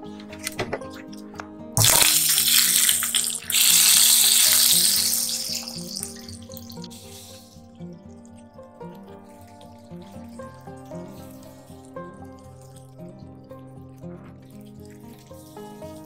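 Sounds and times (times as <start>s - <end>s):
background music: 0.0s - 16.0s
butter sizzling in a frying pan: 1.8s - 7.3s.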